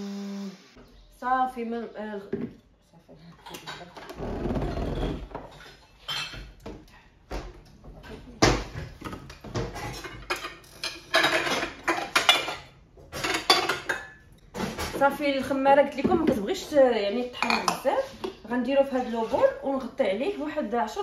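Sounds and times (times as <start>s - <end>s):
dishes clattering in cupboard: 5.1s - 16.5s, 17.2s - 18.4s.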